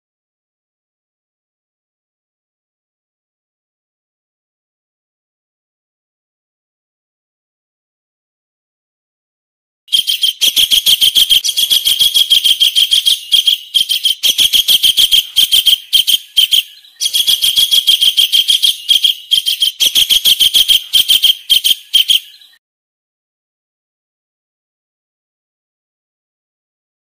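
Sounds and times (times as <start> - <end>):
kingfisher call: 9.9 - 22.6.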